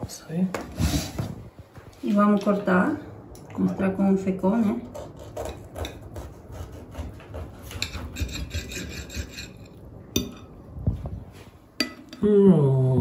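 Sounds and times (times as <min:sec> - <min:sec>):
knife sawing through tortilla wrap: 0:06.2 - 0:09.2.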